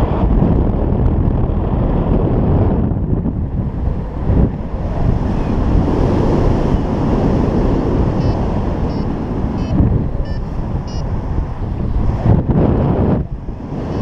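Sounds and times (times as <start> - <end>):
wind buffeting microphone: 0.0 - 14.0
faint short high beeps: 8.2 - 11.1.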